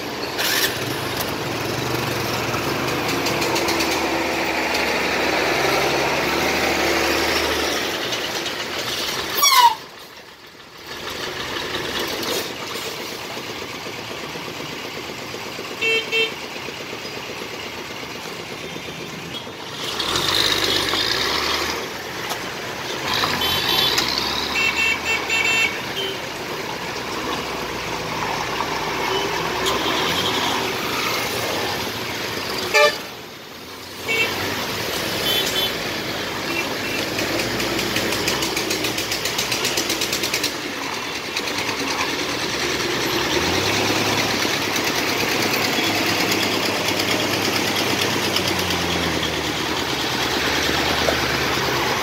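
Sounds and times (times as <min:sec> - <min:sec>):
truck and motorcycle engines: 0:00.0 - 0:52.0
vehicle horns honking: 0:09.4 - 0:09.9, 0:15.8 - 0:16.4, 0:23.3 - 0:26.3, 0:29.0 - 0:30.9, 0:32.6 - 0:33.2, 0:34.0 - 0:34.5, 0:35.2 - 0:35.8.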